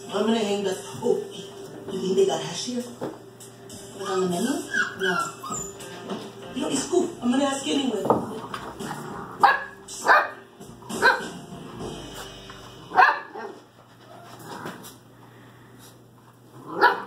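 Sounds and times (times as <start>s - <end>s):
puppies barking: 3.9s - 6.4s, 8.6s - 11.5s, 12.9s - 13.7s, 16.7s - 17.0s.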